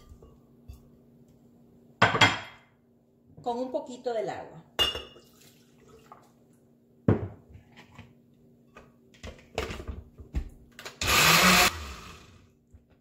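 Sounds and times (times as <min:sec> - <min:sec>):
blender running: 0:10.8 - 0:12.5.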